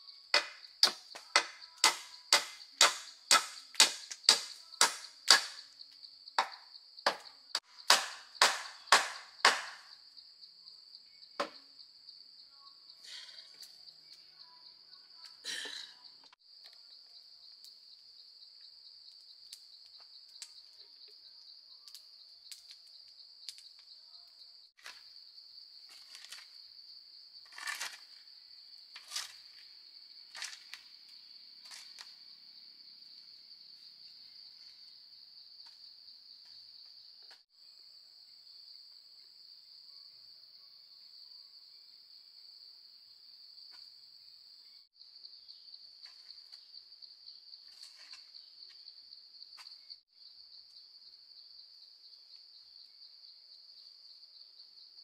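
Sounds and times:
tool striking wood: 0.4 - 5.6, 6.4 - 9.9, 11.4 - 11.6.

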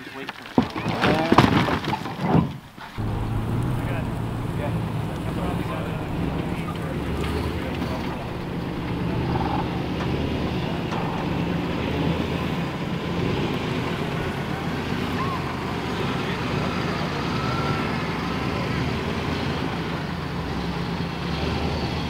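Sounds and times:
pickup truck engine at low revs: 2.8 - 22.0.

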